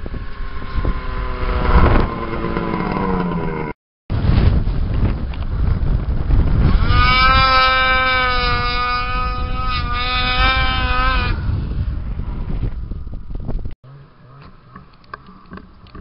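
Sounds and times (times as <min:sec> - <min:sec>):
snowmobile engine whine: 0:00.0 - 0:16.0
low engine rumble: 0:10.8 - 0:16.0.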